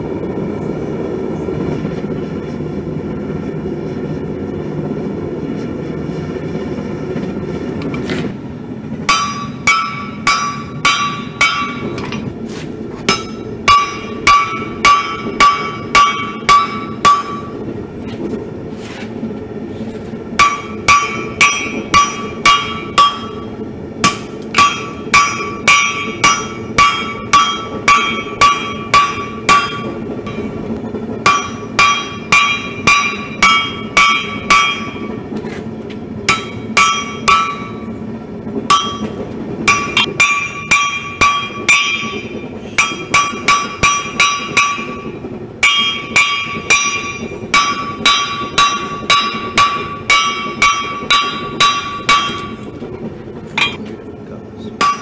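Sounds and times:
hammer blows ringing anvil: 0:09.1 - 0:12.3, 0:13.1 - 0:17.6, 0:20.4 - 0:30.6, 0:31.2 - 0:35.2, 0:36.3 - 0:37.9, 0:38.7 - 0:52.6, 0:53.6 - 0:53.8, 0:54.8 - 0:55.0.

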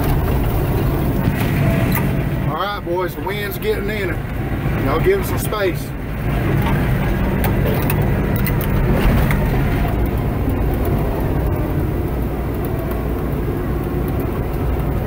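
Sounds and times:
bulldozer diesel engine running: 0:00.0 - 0:15.0
sharp clicks: 0:06.5 - 0:15.0.

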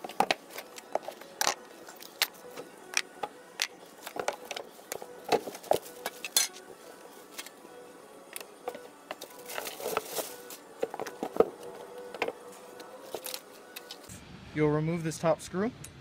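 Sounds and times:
parts knocking and clattering: 0:00.0 - 0:06.6, 0:08.6 - 0:12.4.

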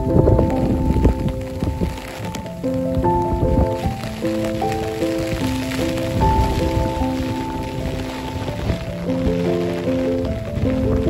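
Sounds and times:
gentle instrumental music: 0:00.0 - 0:11.0
rain hiss: 0:00.0 - 0:11.0.

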